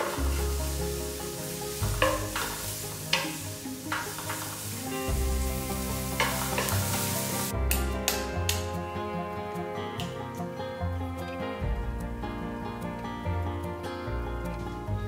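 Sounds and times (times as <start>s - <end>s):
spatula scraping vegetables: 0.0s - 7.5s
vegetables sizzling in oil: 0.0s - 7.5s.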